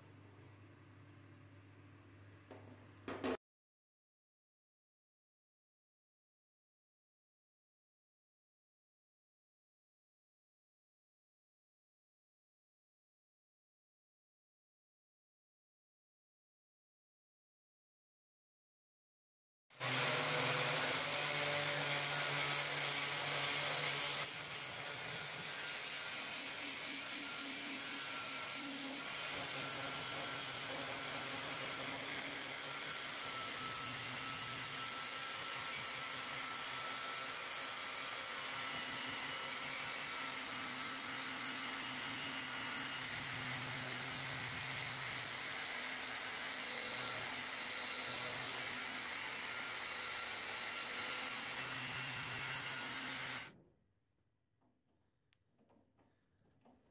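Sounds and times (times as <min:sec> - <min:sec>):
angle grinder whining: 0:19.8 - 0:53.6.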